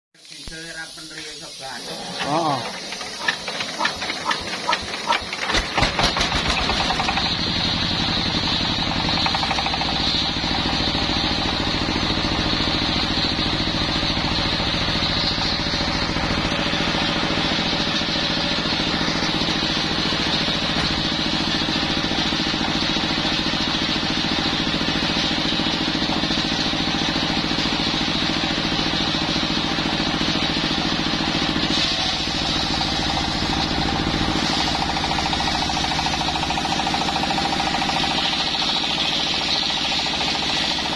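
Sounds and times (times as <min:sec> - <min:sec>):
diesel engine running: 0:00.3 - 0:40.9
saw blade spinning: 0:01.8 - 0:05.3.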